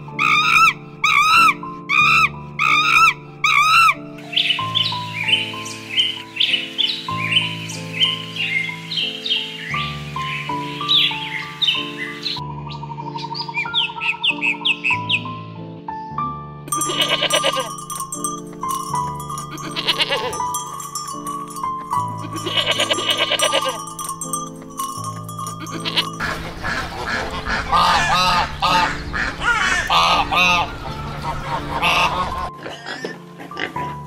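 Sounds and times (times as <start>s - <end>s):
background music: 0.0s - 34.0s
goats bleating: 16.7s - 17.9s, 18.7s - 20.5s, 22.1s - 24.0s, 25.6s - 26.3s.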